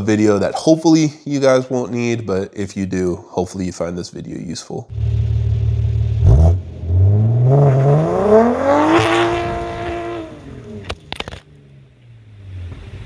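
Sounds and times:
car engine idling and revving: 0:04.9 - 0:13.0.

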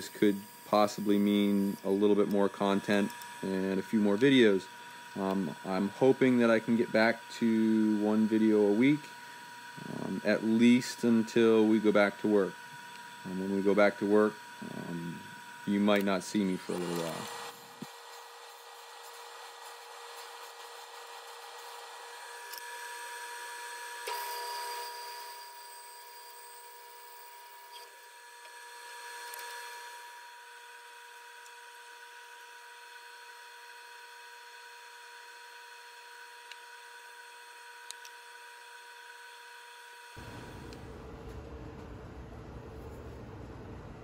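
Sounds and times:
woodworking power tools humming: 0:00.0 - 0:44.0.

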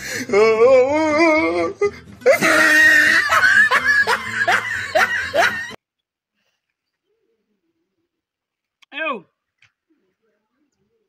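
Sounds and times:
person laughing: 0:02.2 - 0:05.8.

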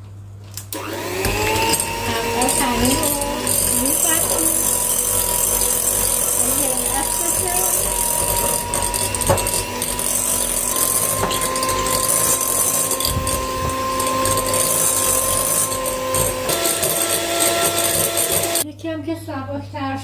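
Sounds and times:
electric mixer motor whining: 0:00.7 - 0:18.6.

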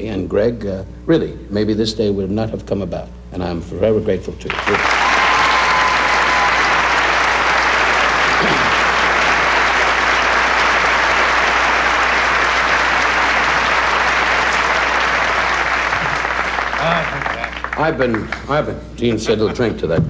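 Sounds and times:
audience applauding: 0:04.5 - 0:18.7.

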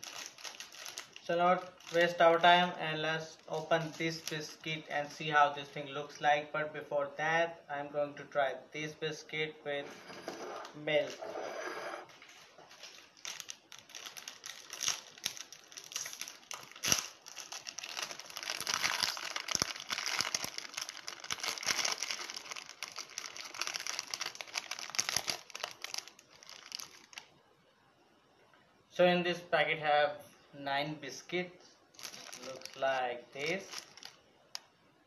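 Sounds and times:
plastic wrapper crinkling: 0:00.0 - 0:02.5, 0:03.6 - 0:05.2, 0:12.5 - 0:27.4, 0:31.9 - 0:34.6.

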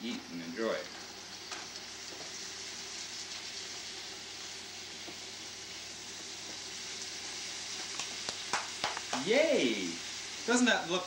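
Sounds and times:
beef sizzling in frying pan: 0:00.0 - 0:11.0.

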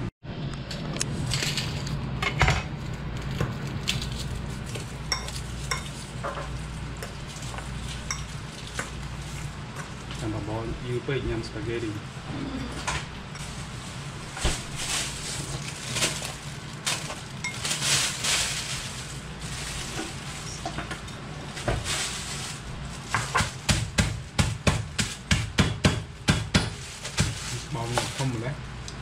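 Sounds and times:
kitchen work noise: 0:00.0 - 0:29.0.

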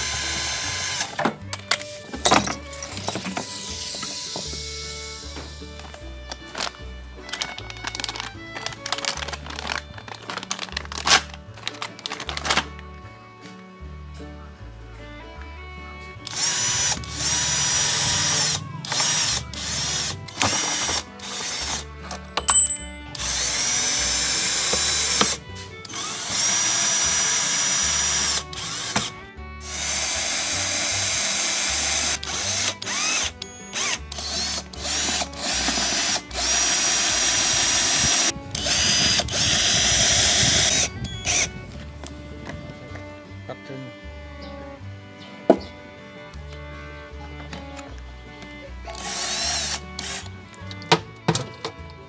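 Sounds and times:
power drill driving screws: 0:00.0 - 0:06.7, 0:16.2 - 0:41.6, 0:48.9 - 0:50.8.

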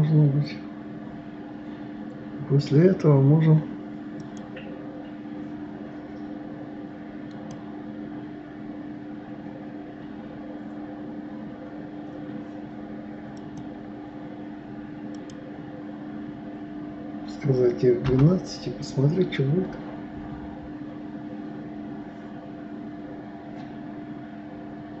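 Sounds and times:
low hum with hiss: 0:00.0 - 0:25.0
faint mouse clicks: 0:15.1 - 0:15.4.

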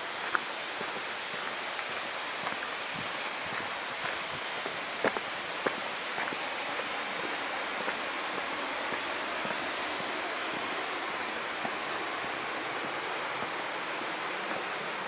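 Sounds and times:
flowing water rushing: 0:00.0 - 0:15.0
footsteps on stone: 0:00.1 - 0:10.8, 0:11.5 - 0:14.7.

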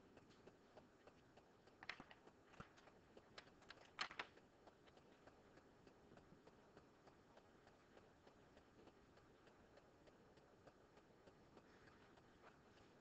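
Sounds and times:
pen clicks and rustles: 0:01.7 - 0:05.2.

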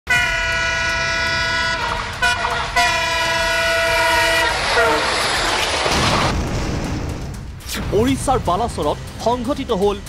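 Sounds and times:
locomotive horn blasts: 0:00.1 - 0:05.3
low rumble: 0:04.6 - 0:09.2.

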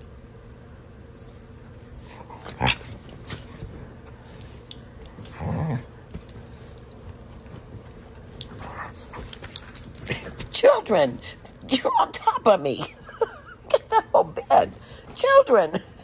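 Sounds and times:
dog growling: 0:02.2 - 0:03.1, 0:05.3 - 0:06.0
dogs scuffling on bedding: 0:06.1 - 0:10.6.

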